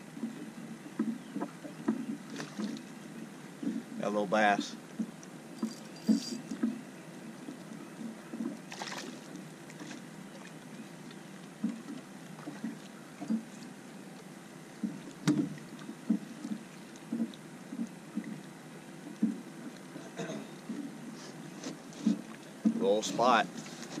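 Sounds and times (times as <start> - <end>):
water lapping against boat hull: 0.0 - 24.0
sharp knock on hull: 14.8 - 16.2.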